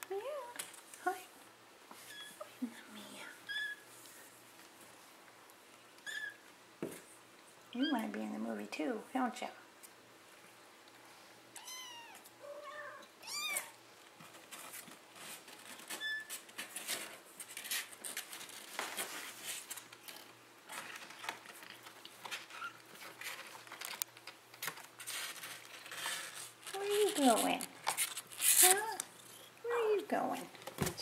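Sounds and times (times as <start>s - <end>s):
kittens scratching and rustling: 13.2s - 29.5s.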